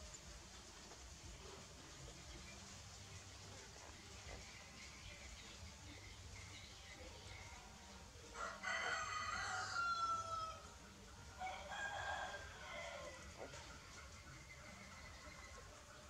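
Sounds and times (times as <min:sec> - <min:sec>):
rooster crowing: 0:08.4 - 0:10.7, 0:11.4 - 0:13.6.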